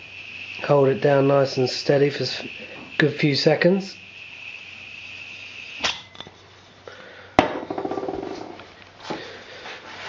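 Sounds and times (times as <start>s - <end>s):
gas hissing into tank: 0.0s - 7.4s.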